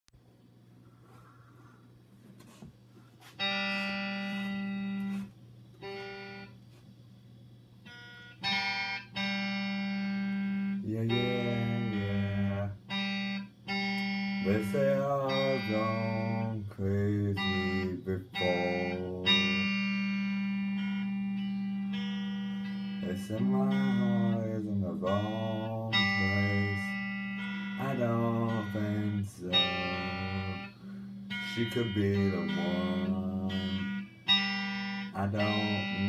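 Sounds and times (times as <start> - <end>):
electric guitar chords: 3.2 - 6.6, 7.8 - 36.0.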